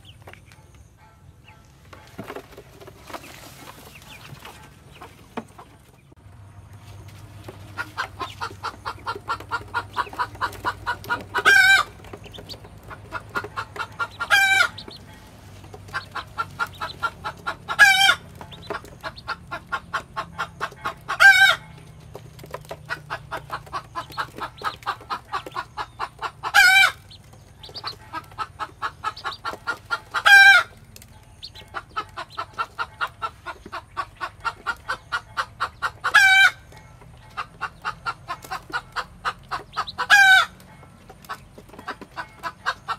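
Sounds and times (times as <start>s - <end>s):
hen clucking: 0.0s - 42.9s.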